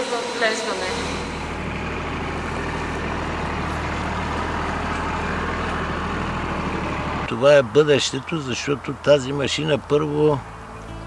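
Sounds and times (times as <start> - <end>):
machine hum: 0.0 - 9.0.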